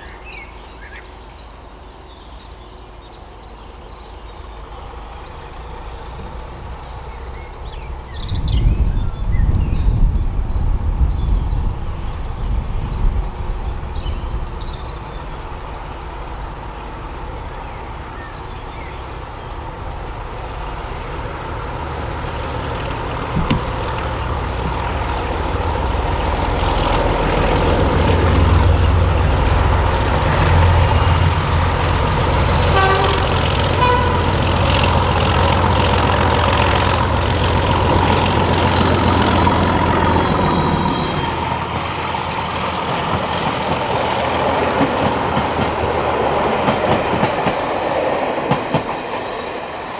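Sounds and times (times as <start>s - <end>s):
diesel locomotive engine: 0.0s - 49.9s
locomotive horn: 32.5s - 36.4s.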